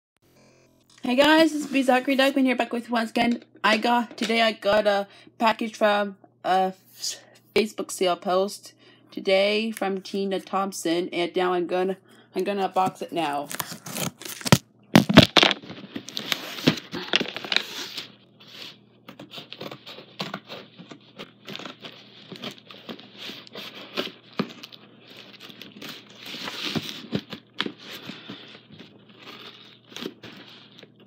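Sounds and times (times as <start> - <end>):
cardboard and packing rustling: 13.5 - 31.0
tape tearing: 13.5 - 31.0.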